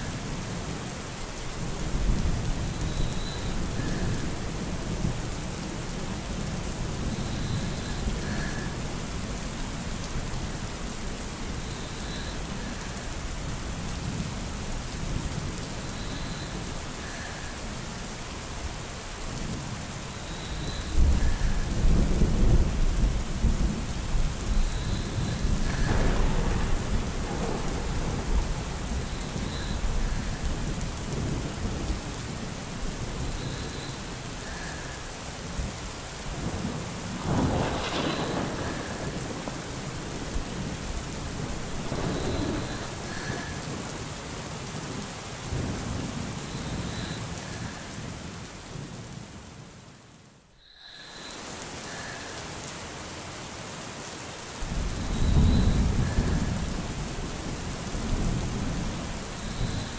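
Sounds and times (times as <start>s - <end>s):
steady rain: 0.0s - 59.9s
low rolls of thunder: 20.4s - 44.1s, 54.6s - 59.9s.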